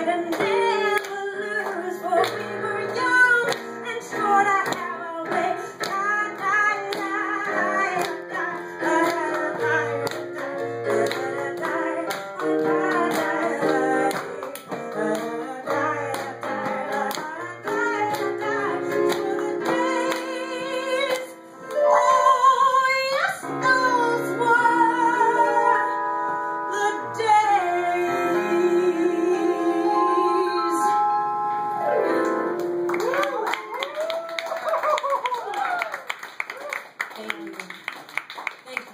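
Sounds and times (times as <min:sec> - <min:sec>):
woman singing: 0:00.0 - 0:26.0, 0:26.7 - 0:31.2
keyboard chords: 0:00.0 - 0:33.0.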